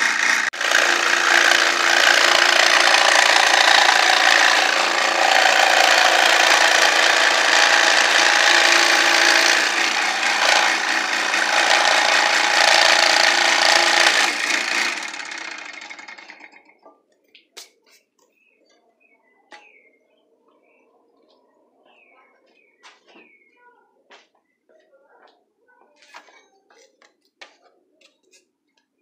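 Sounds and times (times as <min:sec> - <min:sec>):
scroll saw cutting plywood: 0:00.0 - 0:16.5.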